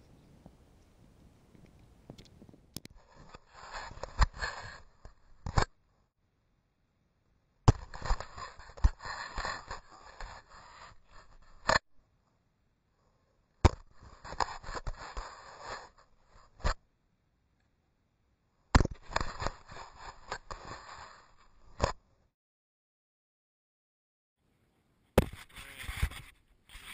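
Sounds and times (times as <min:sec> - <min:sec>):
wind on camera microphone: 0:00.0 - 0:04.8
hand rubbing and knocking camera: 0:25.2 - 0:26.9.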